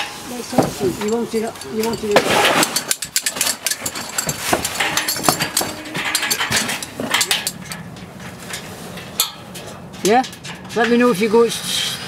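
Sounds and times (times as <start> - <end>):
tools clinking on steel: 0.0 - 11.4.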